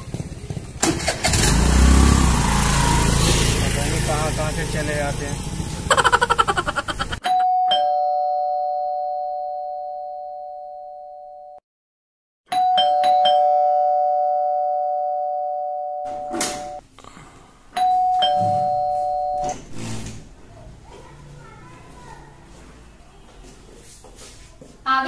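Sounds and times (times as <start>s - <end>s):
electronic two-tone doorbell: 7.3s - 11.6s, 12.5s - 16.8s, 17.8s - 19.6s.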